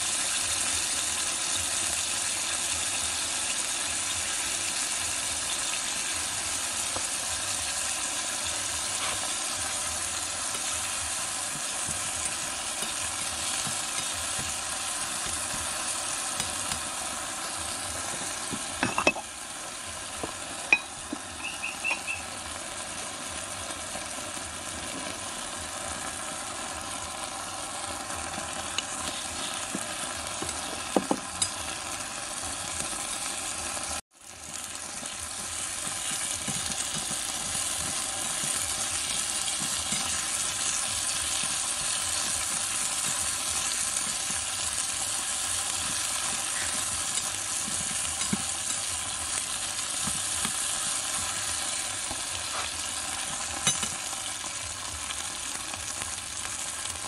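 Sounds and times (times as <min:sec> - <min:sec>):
food sizzling in wok: 0:00.0 - 0:57.0
metal spoon tapping wok: 0:18.1 - 0:19.3, 0:20.2 - 0:22.2, 0:53.6 - 0:54.1.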